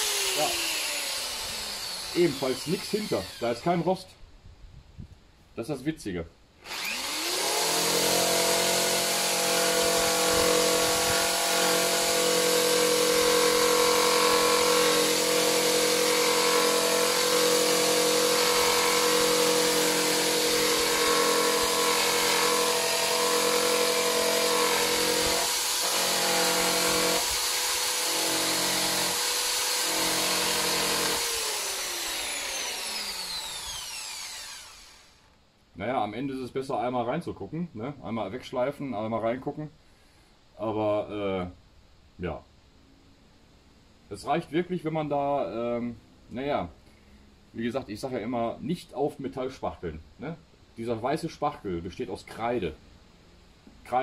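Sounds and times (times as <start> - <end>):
grinder sanding metal: 0.0 - 3.7, 6.7 - 35.1.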